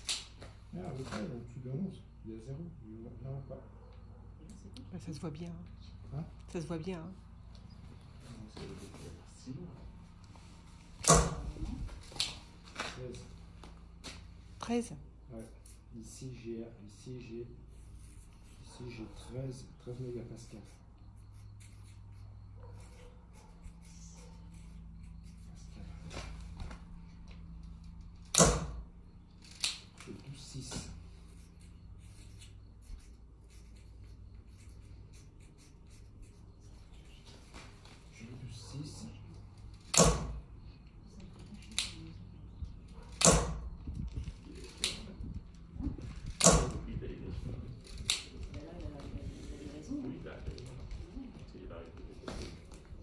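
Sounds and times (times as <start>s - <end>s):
steady low hum: 0.0s - 53.0s
pencil scratching on concrete: 14.6s - 28.2s, 29.4s - 40.0s.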